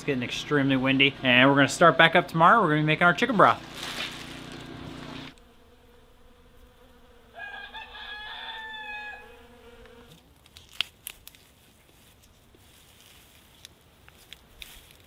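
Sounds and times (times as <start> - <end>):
honeybee buzzing: 3.2 - 10.2
rooster crowing: 7.3 - 9.6.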